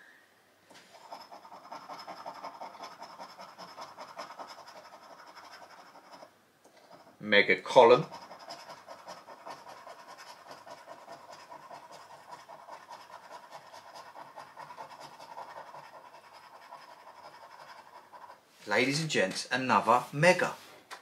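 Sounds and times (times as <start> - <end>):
scratch card scraping: 0.7 - 7.1, 7.7 - 18.4.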